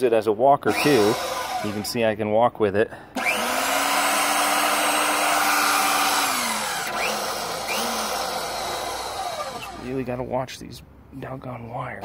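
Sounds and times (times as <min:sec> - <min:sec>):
drill motor driving gearbox: 0:00.7 - 0:01.9, 0:03.2 - 0:09.9.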